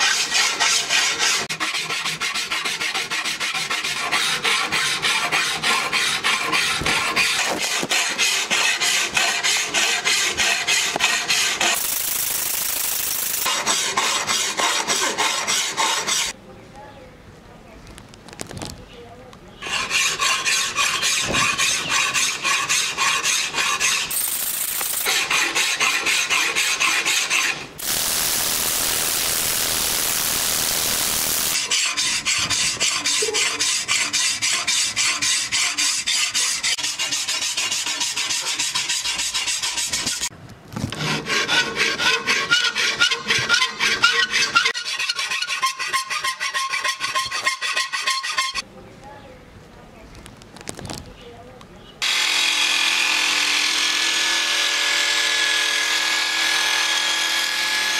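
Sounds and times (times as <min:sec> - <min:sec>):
file rasping on steel blade: 0:00.0 - 0:16.4, 0:19.6 - 0:27.9, 0:30.6 - 0:40.3, 0:40.9 - 0:48.6.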